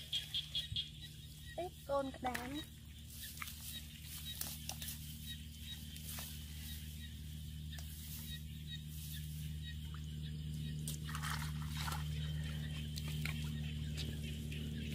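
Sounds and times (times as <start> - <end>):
steady low hum: 0.0 - 14.9.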